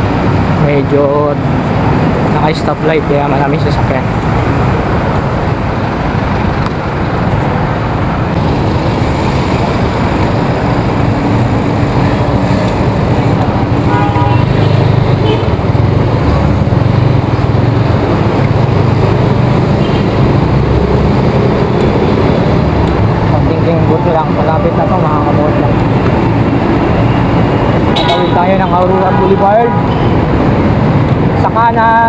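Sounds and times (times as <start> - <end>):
car and scooter engines running: 0.0 - 32.0
vehicle horn: 13.8 - 15.5, 27.9 - 28.4.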